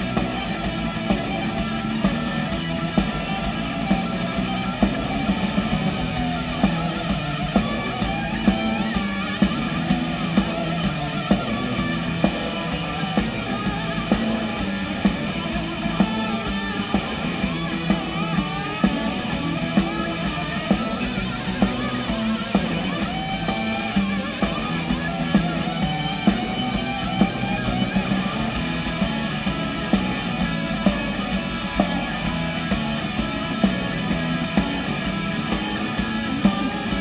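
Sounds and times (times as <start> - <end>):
electric bass: 0.0 - 37.0
electric guitar solo: 0.0 - 37.0
steady drum beat: 0.0 - 37.0.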